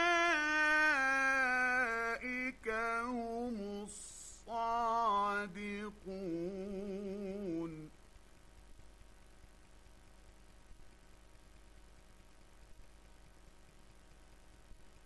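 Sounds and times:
man chanting melodically: 0.0 - 7.9.

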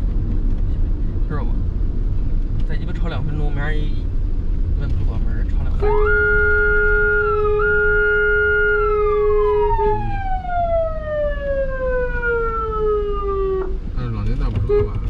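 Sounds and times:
low rumble of vehicle: 0.0 - 15.0
ambulance siren: 5.8 - 13.9.

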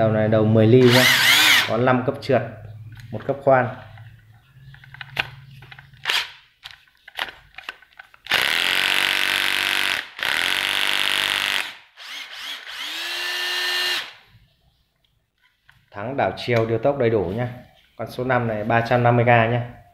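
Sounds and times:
drill motor whining: 0.8 - 1.7, 8.3 - 14.2.

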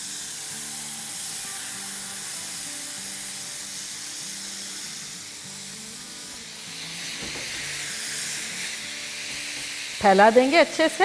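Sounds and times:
chicken sizzling in a frying pan: 0.0 - 11.0.

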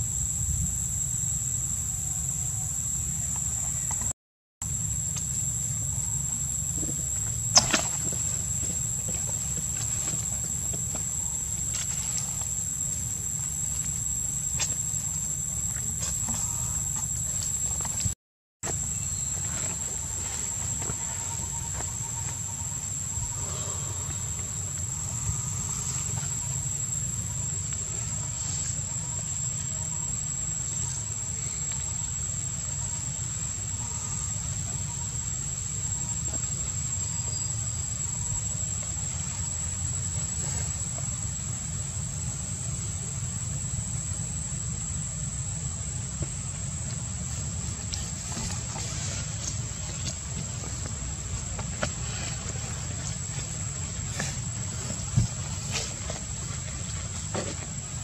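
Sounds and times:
high-pitched insect drone: 0.0 - 58.0.

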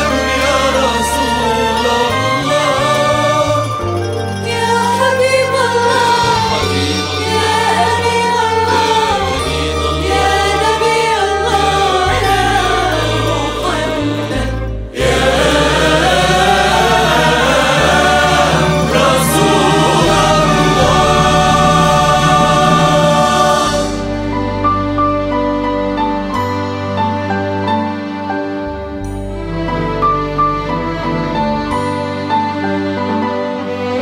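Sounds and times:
choir-like backing vocals: 0.0 - 25.3
instrumental accompaniment with bass: 0.0 - 34.0.

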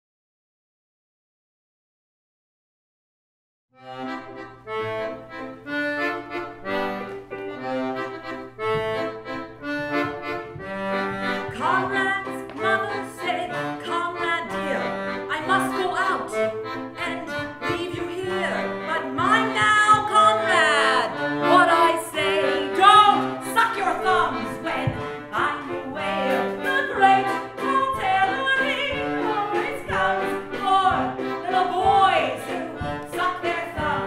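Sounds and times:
piano accordion playing a tune: 3.8 - 34.0.

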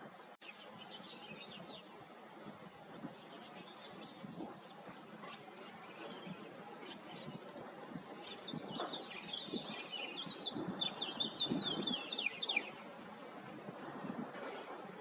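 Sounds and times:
songbird twittering: 8.2 - 12.9.

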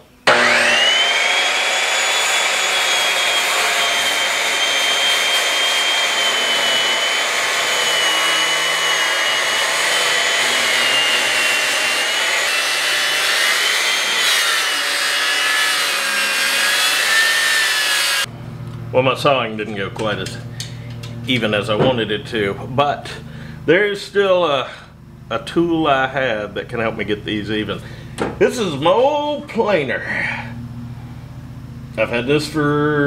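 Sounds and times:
circular saw cutting wood: 0.2 - 18.3.

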